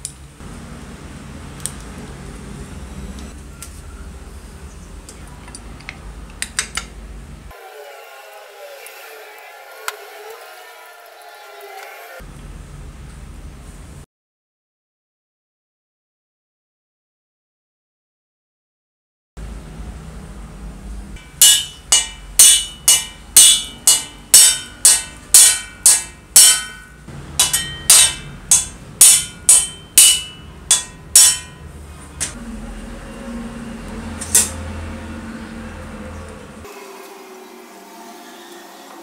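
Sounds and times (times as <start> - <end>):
hammer striking metal: 21.2 - 32.4, 34.1 - 34.8.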